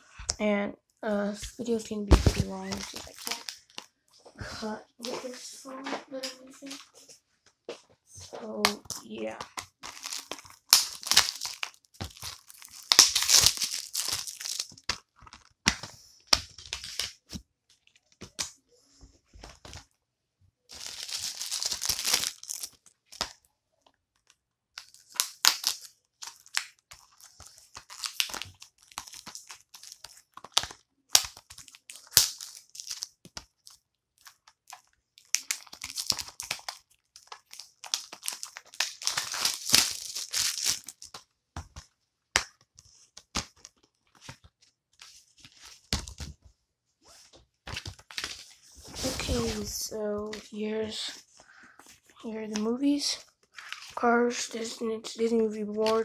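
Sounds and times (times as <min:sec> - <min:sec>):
packaging crinkling and tearing: 0:02.1 - 0:03.9, 0:08.5 - 0:18.5, 0:20.7 - 0:23.5, 0:24.1 - 0:41.8, 0:47.7 - 0:50.5, 0:51.8 - 0:56.0.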